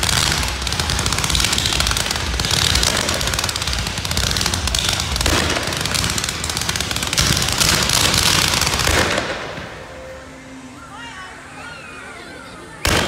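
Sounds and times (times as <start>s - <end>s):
fireworks popping and crackling: 0.0s - 10.1s.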